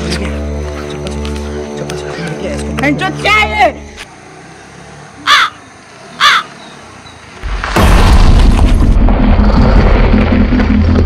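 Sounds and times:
harsh bird calls: 0:05.2 - 0:07.4
loud low rumble: 0:07.4 - 0:11.0.

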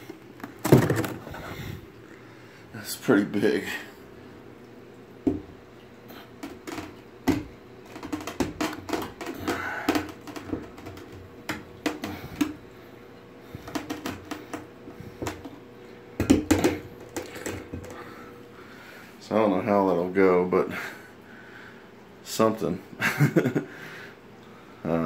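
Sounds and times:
aquarium pump humming: 0:00.0 - 0:25.0
irregular clicks and taps: 0:06.4 - 0:12.6.

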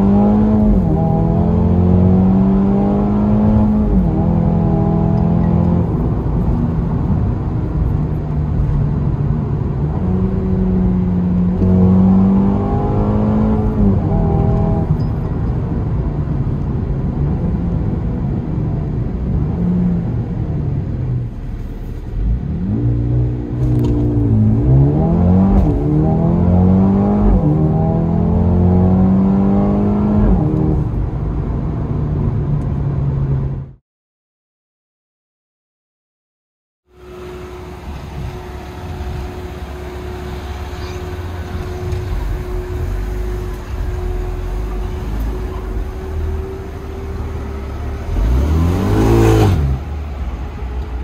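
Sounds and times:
car engine revving through gears: 0:00.0 - 0:07.2, 0:09.7 - 0:15.0, 0:22.2 - 0:31.0, 0:37.0 - 0:51.0.

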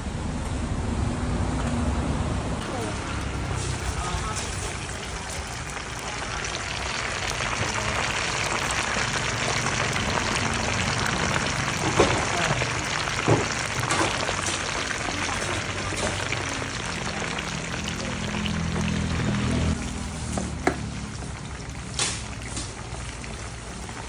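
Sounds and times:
meat sizzling in hot oil: 0:02.9 - 0:24.0.

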